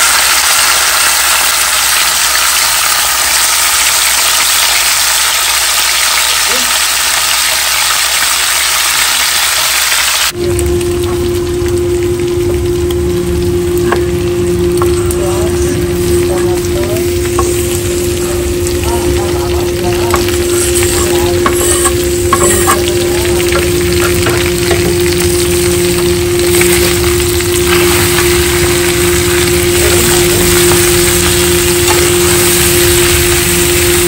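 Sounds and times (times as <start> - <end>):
meat sizzling in oil: 0.0 - 34.0
steady hum: 10.3 - 34.0
spoon scraping pan: 14.8 - 32.6.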